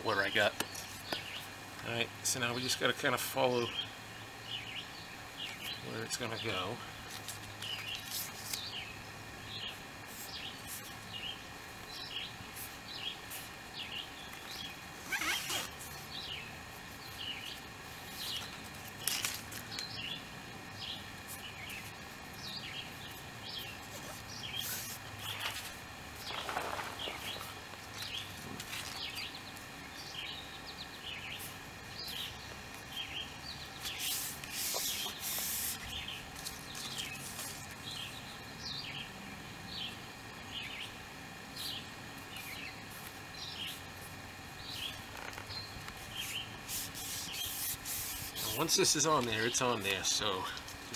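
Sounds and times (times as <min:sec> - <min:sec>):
small birds chirping: 0:00.0 - 0:50.9.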